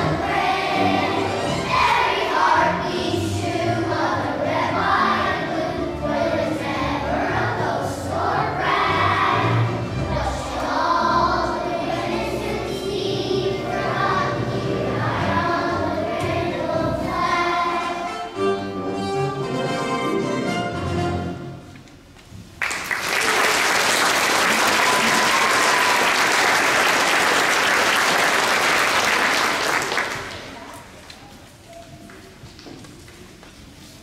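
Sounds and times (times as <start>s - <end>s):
children's choir singing: 0.0s - 19.0s.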